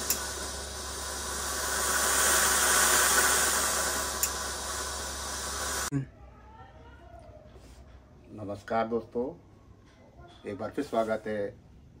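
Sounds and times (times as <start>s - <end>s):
steam iron hissing: 0.0s - 5.9s.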